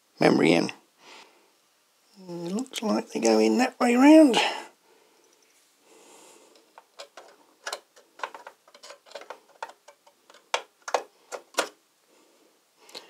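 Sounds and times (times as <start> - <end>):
plastic clicks and taps: 6.6 - 11.8.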